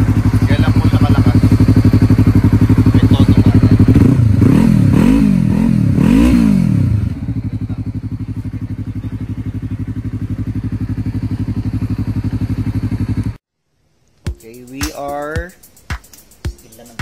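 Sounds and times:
motorcycle engine revving and idling: 0.0 - 13.4.

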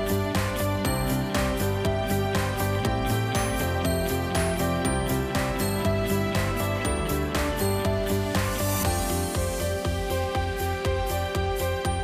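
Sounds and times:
music with held notes and beat: 0.0 - 12.0.

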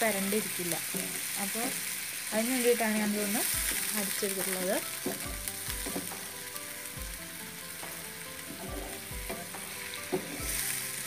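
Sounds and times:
onion paste sizzling in a pan: 0.0 - 11.0
wooden spatula knocking on pan: 5.0 - 6.2, 8.5 - 10.6.

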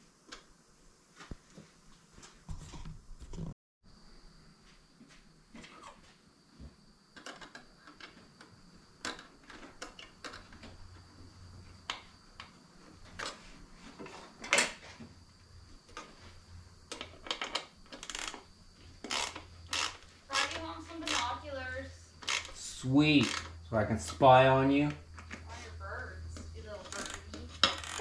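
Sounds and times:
hand tools clicking on metal clamps: 19.0 - 21.2.

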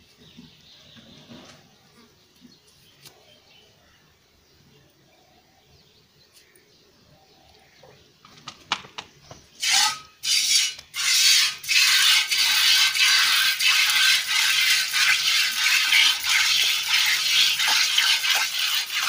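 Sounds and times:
milk squirting into pail: 10.4 - 19.0.

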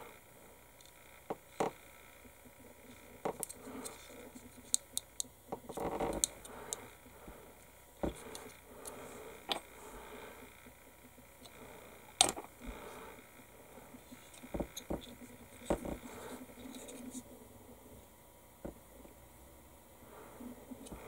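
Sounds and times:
plastic parts clicking: 3.2 - 6.8.

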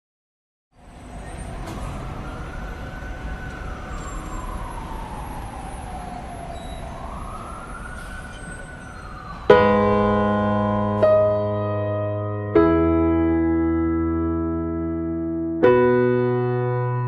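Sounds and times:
emergency vehicle siren wailing: 0.8 - 11.9.

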